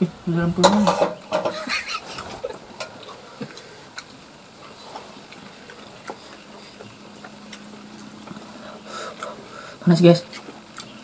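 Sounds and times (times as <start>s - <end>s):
cutlery and dishes clinking: 0.6s - 1.7s.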